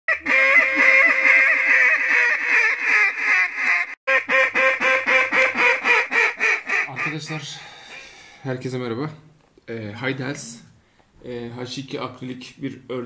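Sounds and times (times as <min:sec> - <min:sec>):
duck call chattering: 0:00.1 - 0:07.4
duck call quacks: 0:00.1 - 0:07.4.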